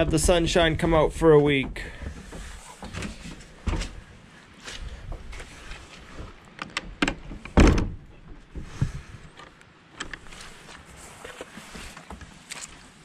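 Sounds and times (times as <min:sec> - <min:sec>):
wooden planks and latch rattling: 0:05.1 - 0:08.8
door thump: 0:07.0 - 0:08.1.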